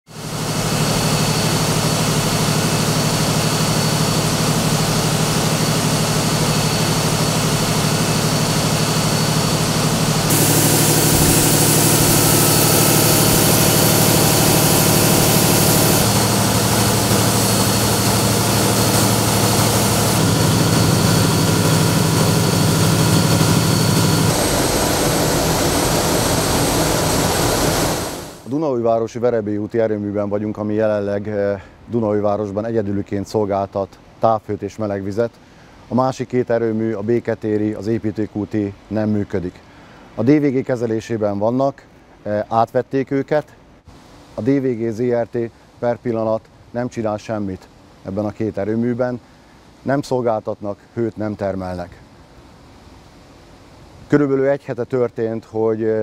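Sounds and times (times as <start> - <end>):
gas engine running: 0.1 - 28.5
machinery hiss: 0.2 - 28.5
machinery low hum: 0.2 - 28.5.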